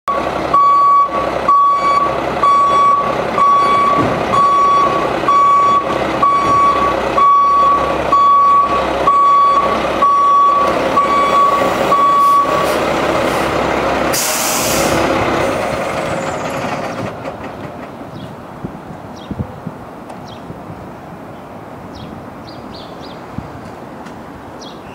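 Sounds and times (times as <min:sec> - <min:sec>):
truck backup alarm beeping: 0:00.1 - 0:12.8
diesel engine running: 0:00.1 - 0:18.9
air brake hiss: 0:14.1 - 0:15.0.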